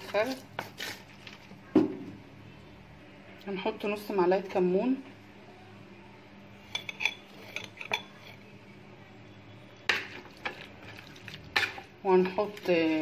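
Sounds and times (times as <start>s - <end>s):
metal spoon clinking on bowl: 6.7s - 8.4s.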